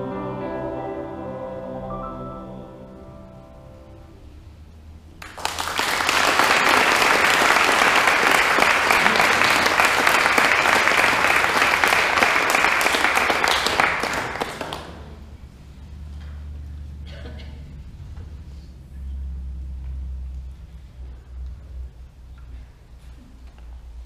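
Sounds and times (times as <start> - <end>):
vocal group singing chord: 0.0 - 4.1
audience applauding: 5.2 - 15.3.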